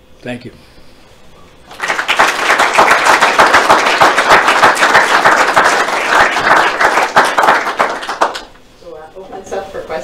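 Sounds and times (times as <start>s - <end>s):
audience applause: 1.7s - 8.6s.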